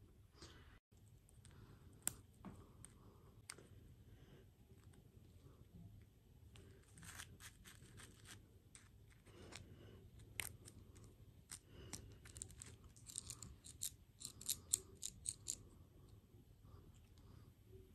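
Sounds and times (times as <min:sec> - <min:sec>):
plastic toy parts clicking: 0:10.3 - 0:15.6.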